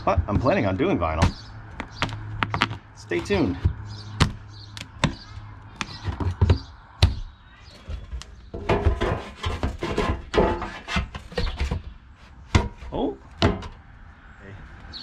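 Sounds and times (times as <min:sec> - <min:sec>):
pry bar knocking and cracking wood: 0:00.0 - 0:07.3, 0:12.5 - 0:13.8
plastic vent cap scraping wood: 0:07.8 - 0:13.8.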